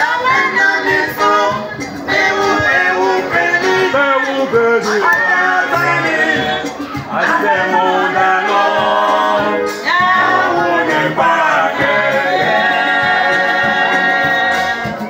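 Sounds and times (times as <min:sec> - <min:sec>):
choir singing in harmony: 0:00.0 - 0:15.0.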